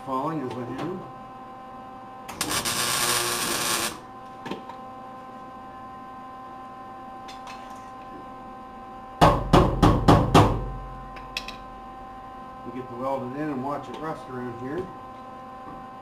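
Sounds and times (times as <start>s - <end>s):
steady electrical hum: 0.0s - 16.0s
arc welding crackling sizzle: 2.3s - 4.1s
loud knocks: 9.2s - 10.8s.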